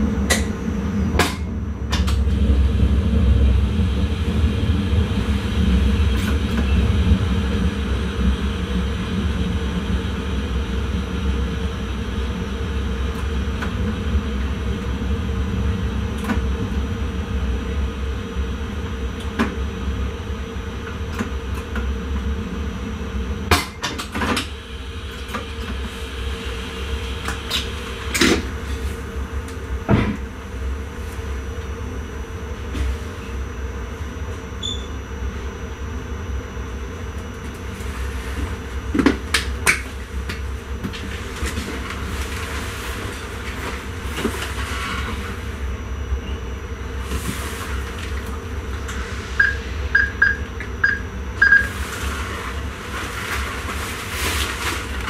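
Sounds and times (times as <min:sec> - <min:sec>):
train cab low hum: 0:00.0 - 0:55.0
short high beeps: 0:49.4 - 0:51.7.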